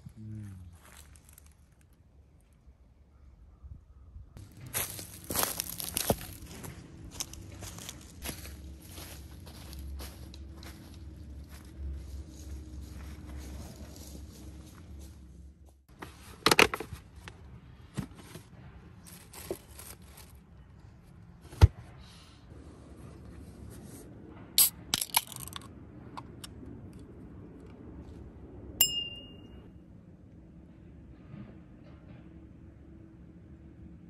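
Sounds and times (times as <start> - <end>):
ringing clink: 28.8 - 29.7.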